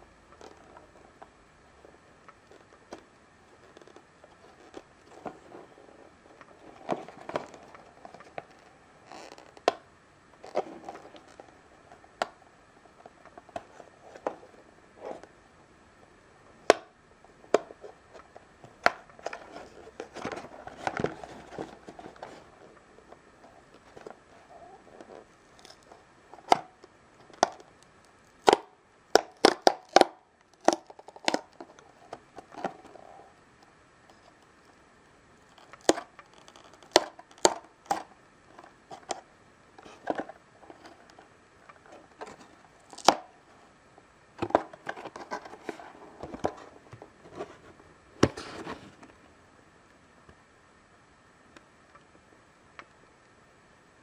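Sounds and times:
cardboard clicks and snaps: 42.9s - 43.3s.

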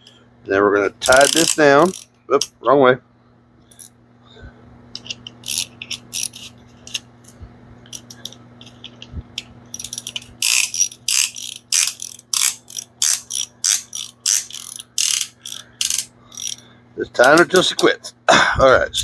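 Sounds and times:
ratchet clicking: 1.0s - 2.1s, 5.0s - 7.0s, 7.9s - 16.6s.

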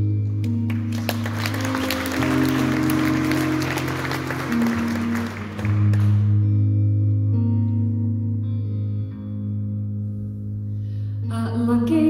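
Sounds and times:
audience applause: 0.4s - 6.4s.

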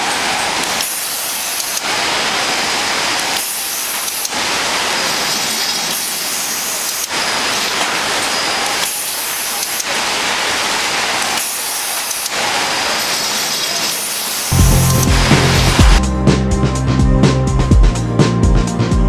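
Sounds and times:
machinery hiss: 11.2s - 16.0s.

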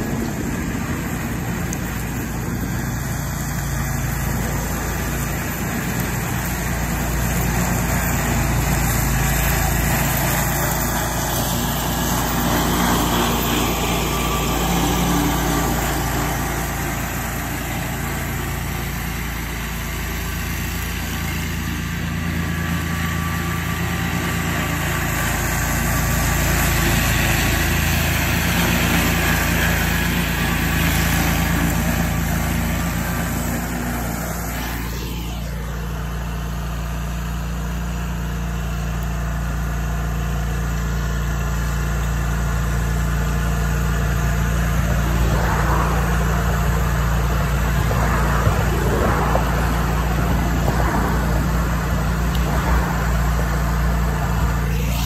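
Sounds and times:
mower engine running: 0.0s - 55.0s
falling whoosh: 44.6s - 55.0s.

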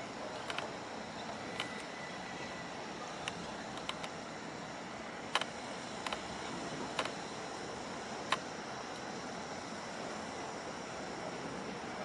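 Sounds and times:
outdoor background hiss: 0.0s - 12.0s
sharp clicks: 3.2s - 4.2s, 5.3s - 6.3s, 6.9s - 7.2s.

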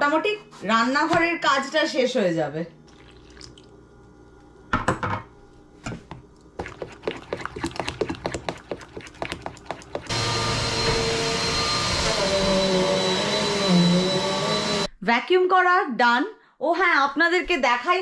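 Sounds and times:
vacuum cleaner whine: 10.1s - 14.9s.

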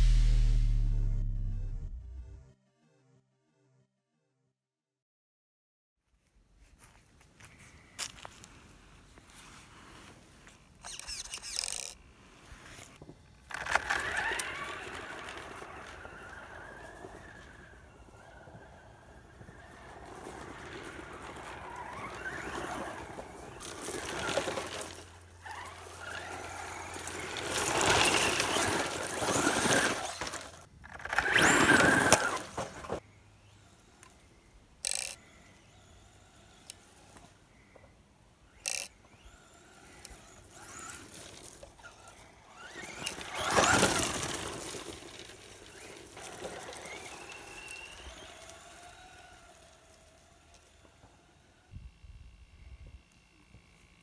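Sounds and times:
brief sharp sounds: 0.0s - 2.5s
electric motor whining: 10.8s - 12.0s, 13.5s - 54.0s.

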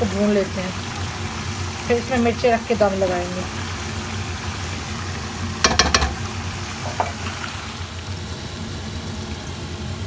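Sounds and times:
meat sizzling in oil: 0.0s - 10.0s
spatula clacking against pot: 5.6s - 6.2s.

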